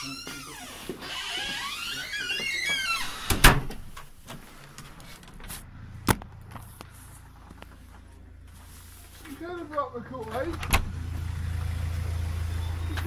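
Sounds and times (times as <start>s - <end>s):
door banging shut: 2.8s - 4.1s.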